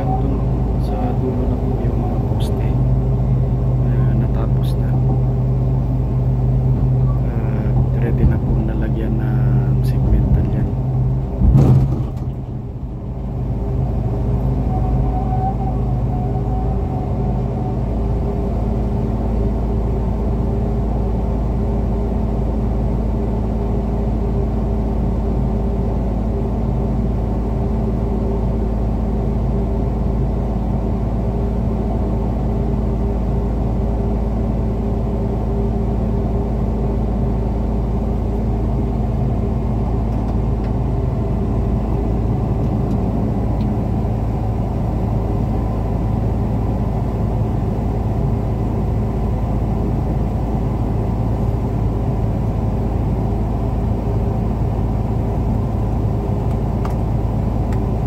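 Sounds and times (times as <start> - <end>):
large vehicle engine idling: 0.0 - 58.0.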